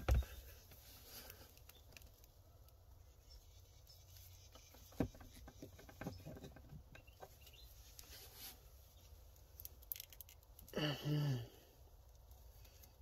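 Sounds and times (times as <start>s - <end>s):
wires rustling: 0.0s - 10.8s
man grunting: 10.8s - 11.6s.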